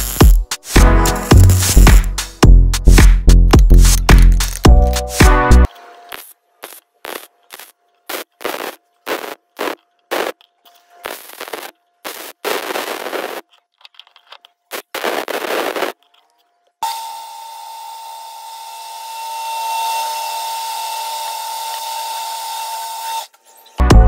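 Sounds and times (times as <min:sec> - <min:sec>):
welder crackling: 0:00.0 - 0:02.4, 0:03.6 - 0:13.5, 0:14.7 - 0:16.0.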